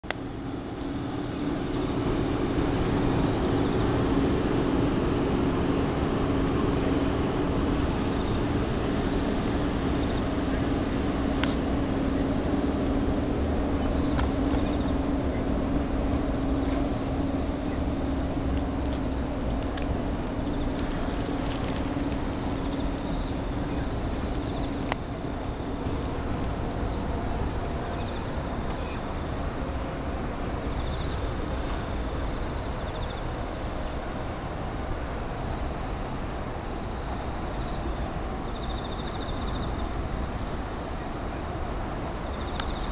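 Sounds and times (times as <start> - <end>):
distant city traffic rumble: 0.0 - 42.9
low hum: 0.1 - 32.6
faint insect chirp: 0.1 - 42.9
insects trilling: 0.2 - 42.9.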